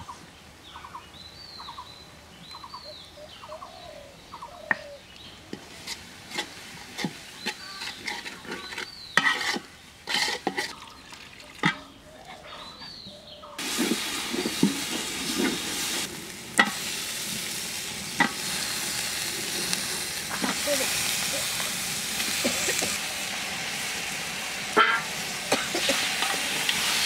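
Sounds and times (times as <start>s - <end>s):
bird calling: 0.0s - 5.3s, 7.4s - 9.3s
metal ladle scraping pot: 5.5s - 10.8s, 13.6s - 16.8s.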